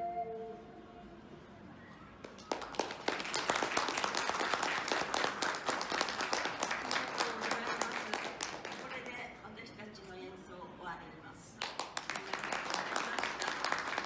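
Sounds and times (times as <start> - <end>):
audience applauding: 2.2 - 9.2, 11.6 - 14.0.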